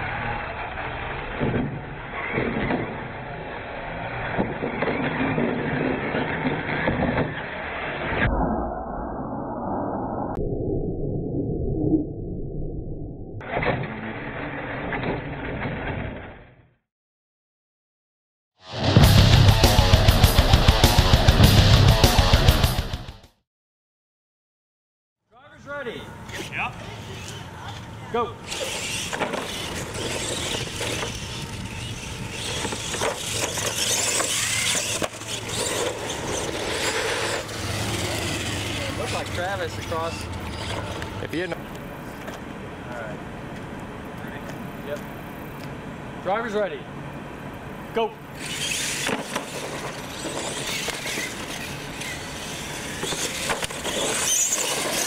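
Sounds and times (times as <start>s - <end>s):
toy truck motors whirring: 0.0s - 8.0s, 26.1s - 42.3s, 48.3s - 55.0s
trucks knocking and clattering: 0.6s - 3.2s
tires scrubbing: 28.4s - 45.1s, 48.3s - 55.0s.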